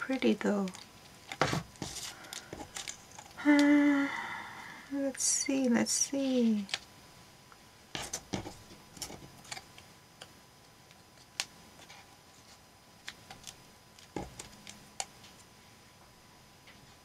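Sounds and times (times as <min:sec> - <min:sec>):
paper rustling: 0:01.2 - 0:03.4.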